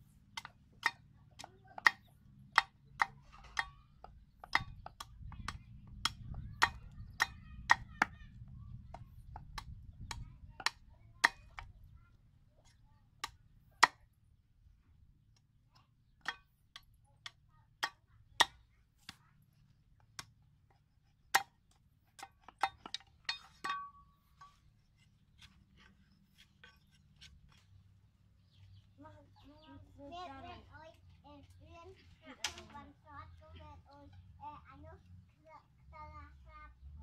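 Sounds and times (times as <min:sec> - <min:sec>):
knife chopping wood: 0:00.3 - 0:08.2, 0:20.1 - 0:24.6.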